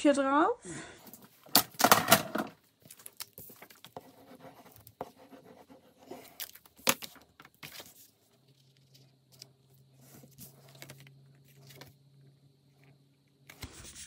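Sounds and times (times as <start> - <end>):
paper rustling on a table: 1.1 - 5.0, 6.1 - 12.0.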